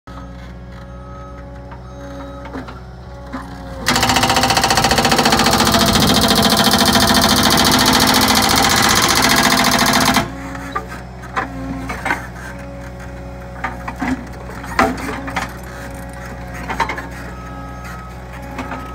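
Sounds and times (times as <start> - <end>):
loader engine running: 0.1 - 18.9
hydraulic breaker hammering concrete: 3.8 - 10.4.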